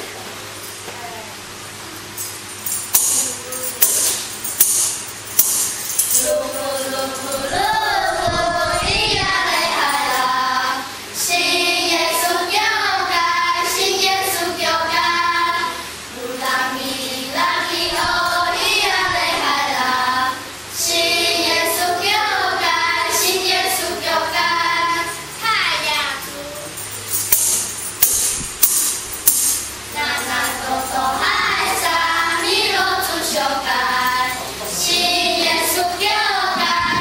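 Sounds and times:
children singing: 6.2s - 25.2s, 29.9s - 37.0s.

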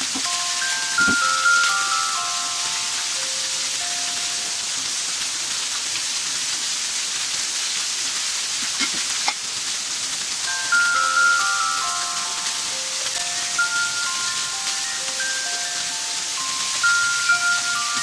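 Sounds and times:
soft chime notes: 0.2s - 4.6s, 10.5s - 18.0s
water splashing on concrete: 5.6s - 10.9s.

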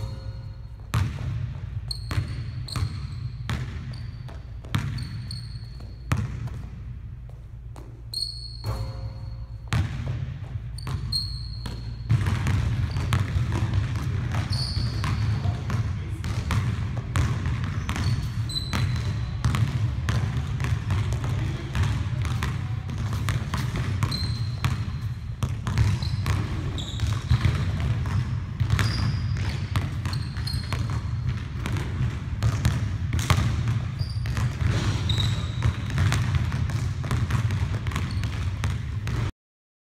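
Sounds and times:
sneaker squeaks: 0.0s - 6.7s, 7.3s - 15.8s, 17.2s - 19.8s, 22.2s - 31.6s, 33.4s - 36.4s, 37.1s - 38.8s
basketball bouncing on hardwood: 0.9s - 6.7s, 9.7s - 39.3s.

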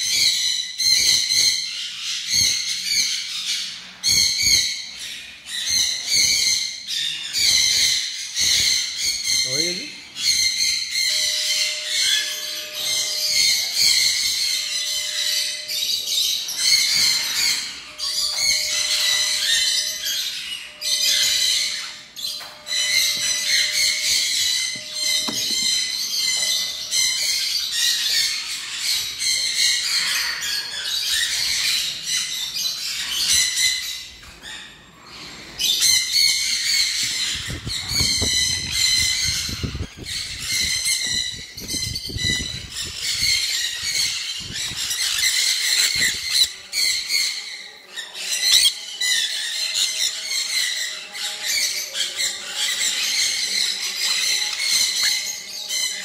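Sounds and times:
parrots screeching: 0.0s - 56.0s.

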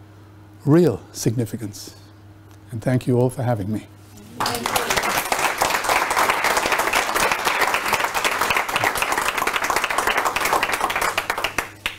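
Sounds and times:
audience applauding: 4.4s - 11.9s.

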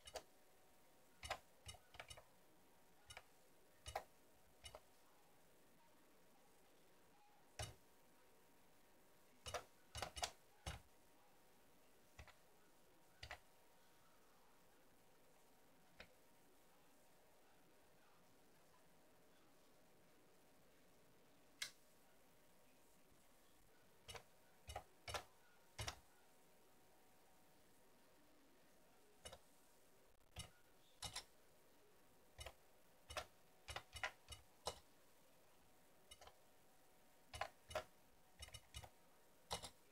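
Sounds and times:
computer keyboard clicks: 1.2s - 2.2s, 9.4s - 10.8s, 32.4s - 34.8s, 39.5s - 39.8s.

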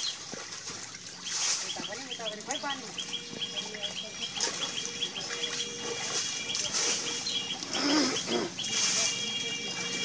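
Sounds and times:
bird chirping: 1.1s - 10.0s
hands squelching in mud: 4.2s - 10.0s.

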